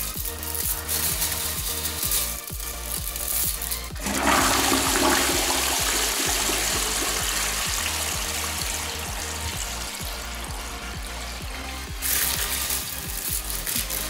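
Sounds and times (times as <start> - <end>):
electronic dance music: 0.0 - 14.0
toilet flushing: 4.0 - 13.1.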